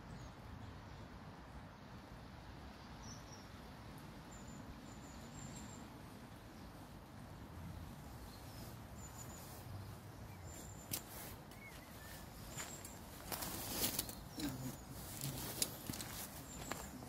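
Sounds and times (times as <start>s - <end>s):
bird chirps: 8.2s - 17.0s.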